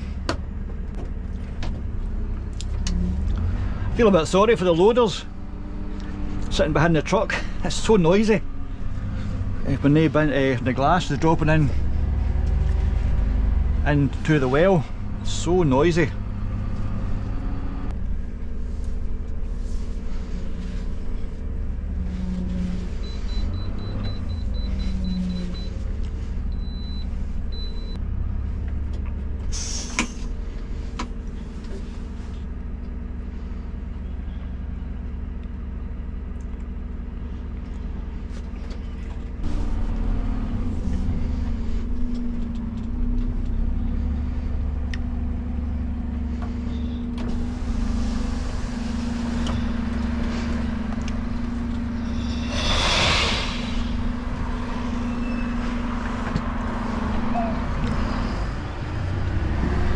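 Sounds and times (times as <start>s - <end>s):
diesel engine running: 0.0s - 59.9s
short hiss: 29.5s - 30.2s, 52.2s - 54.0s.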